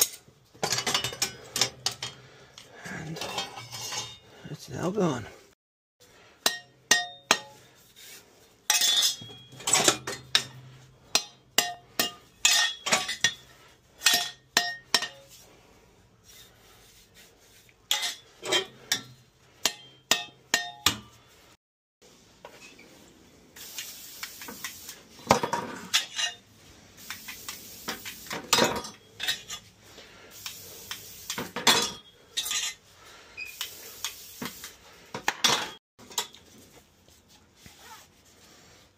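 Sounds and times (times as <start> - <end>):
metal clinks and knocks: 0.0 - 4.3
hiss: 23.6 - 25.1, 26.9 - 28.4, 30.3 - 31.5, 33.4 - 34.9.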